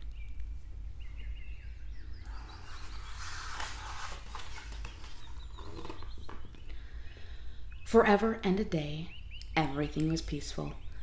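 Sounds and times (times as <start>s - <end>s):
faint high chirping: 0.0s - 8.1s
low steady hum: 0.0s - 11.0s
page turning rustle: 2.3s - 6.5s.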